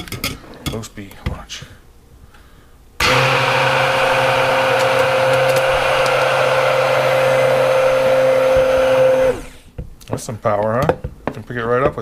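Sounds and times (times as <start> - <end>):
stick blender motor whine: 3.0 - 9.7.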